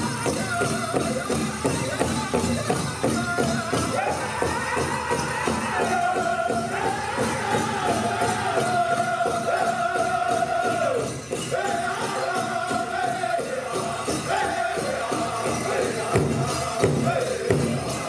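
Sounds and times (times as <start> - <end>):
group singing high notes: 0.0 - 18.0
steady drumbeat on large drum: 12.5 - 18.0.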